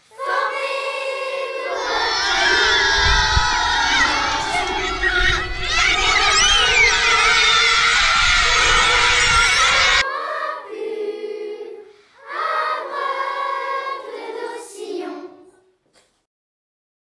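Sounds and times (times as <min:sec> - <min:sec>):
children singing together: 0:00.0 - 0:15.6
children shouting and cheering: 0:01.6 - 0:10.6.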